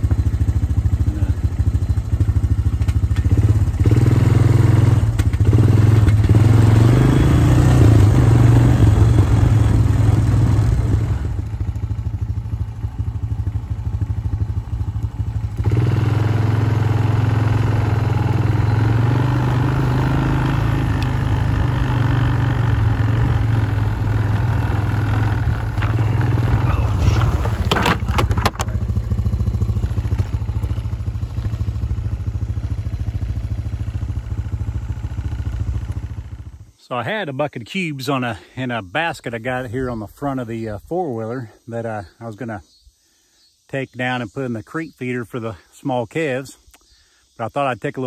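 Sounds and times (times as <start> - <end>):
atv engine running: 0.0 - 36.8.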